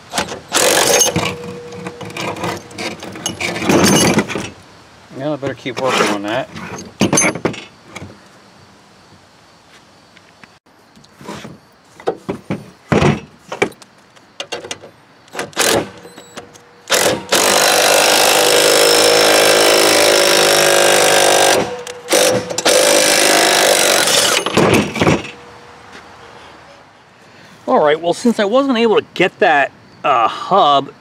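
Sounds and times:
metal clinks and knocks: 0:00.2 - 0:04.6, 0:06.5 - 0:08.1
power tool running: 0:00.5 - 0:03.0, 0:15.6 - 0:16.0, 0:16.9 - 0:25.0.

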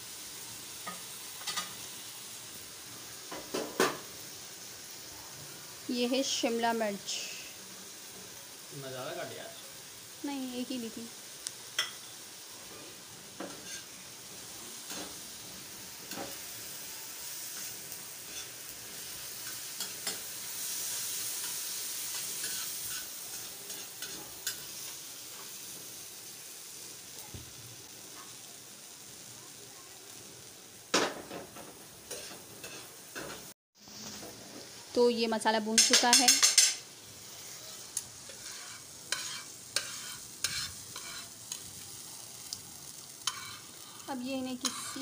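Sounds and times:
vegetables sizzling on a pan: 0:00.0 - 0:45.0
spatula scraping and tapping pan: 0:00.8 - 0:01.8, 0:11.8 - 0:12.0, 0:13.4 - 0:13.9, 0:21.4 - 0:25.6, 0:31.2 - 0:33.5, 0:35.7 - 0:36.8, 0:37.7 - 0:41.6, 0:43.2 - 0:44.0, 0:44.6 - 0:45.0.

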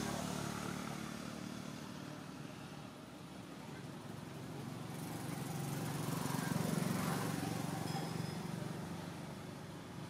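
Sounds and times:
vehicle engine passing by: 0:00.0 - 0:02.4, 0:04.8 - 0:07.9.

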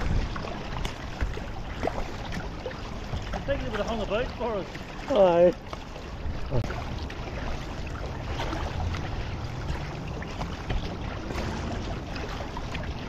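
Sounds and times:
wind rumble on microphone: 0:00.0 - 0:04.0, 0:06.1 - 0:13.0
water lapping against kayak: 0:00.0 - 0:13.0
water drips: 0:06.6 - 0:13.0.

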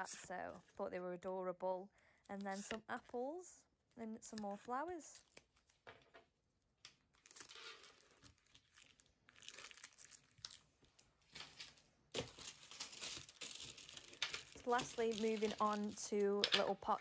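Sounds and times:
paper sheets crinkling and rustling: 0:11.2 - 0:17.0.

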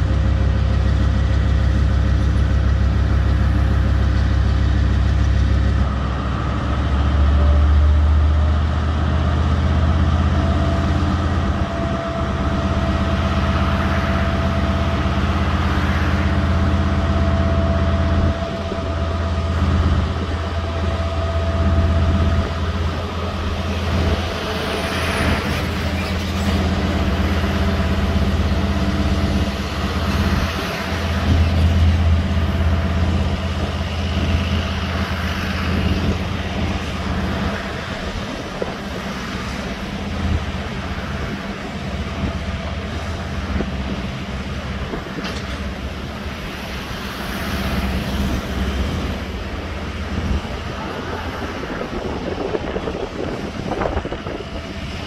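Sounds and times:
locomotive engine drone: 0:00.0 - 0:55.0
train wagons rumbling: 0:00.0 - 0:55.0.

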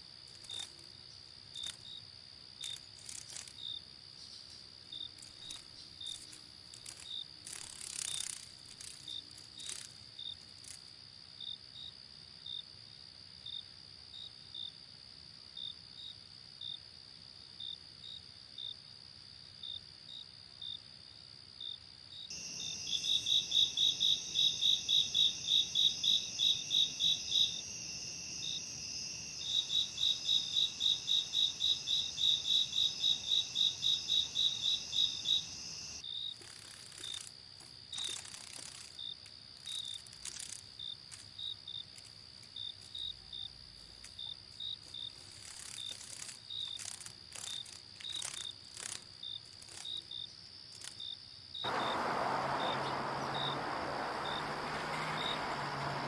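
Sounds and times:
insects droning and chirping: 0:00.0 - 0:56.0
rapid insect chirps: 0:00.3 - 0:10.9, 0:22.3 - 0:56.0.

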